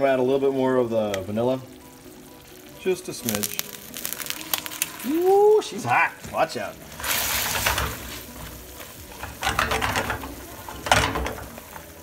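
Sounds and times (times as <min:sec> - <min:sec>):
caramel sizzling in pan: 0:00.0 - 0:12.0
spatula scraping pan: 0:06.9 - 0:12.0.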